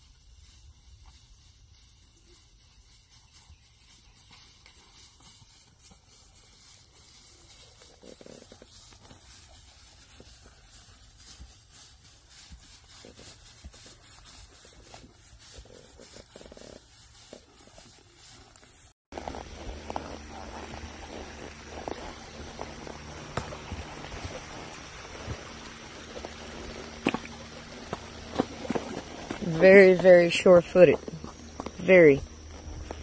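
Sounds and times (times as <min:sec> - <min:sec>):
low steady rumble: 0:19.2 - 0:33.0.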